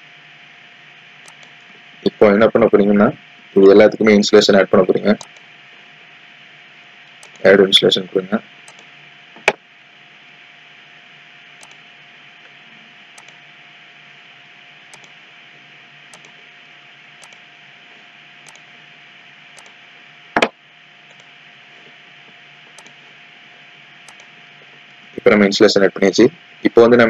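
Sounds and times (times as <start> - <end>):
faint steady hum: 0.0 - 27.0
steady hiss: 0.0 - 27.0
computer mouse click: 1.2 - 1.6, 5.2 - 5.5, 7.2 - 7.4, 8.7 - 9.5, 11.6 - 11.8, 13.2 - 13.4, 14.9 - 15.2, 16.1 - 16.4, 17.2 - 17.4, 18.4 - 18.7, 19.6 - 19.8, 21.1 - 21.3, 22.7 - 23.0, 24.0 - 24.3.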